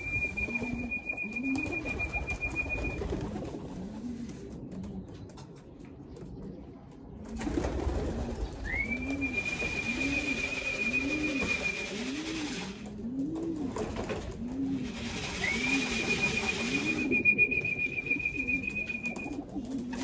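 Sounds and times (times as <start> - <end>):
long steady whistle: 0.0 - 3.0, 8.7 - 11.9, 15.4 - 19.3
wings flapping: 0.0 - 5.8, 7.3 - 20.0
pigeons cooing: 0.0 - 20.0.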